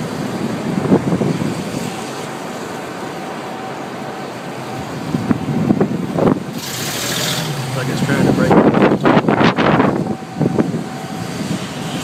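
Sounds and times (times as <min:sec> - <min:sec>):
road noise inside car: 0:00.0 - 0:12.0
wind rushing: 0:07.5 - 0:12.0.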